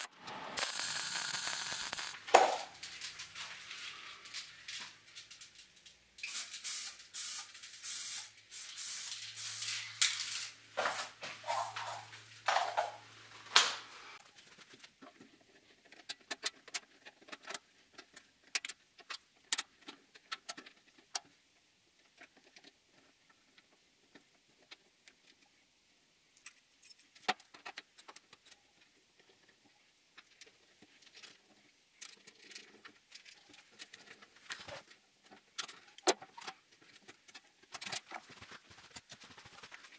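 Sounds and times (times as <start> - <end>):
welding crackling: 0.0 - 3.7
small metallic clicks and clinks: 26.4 - 28.6.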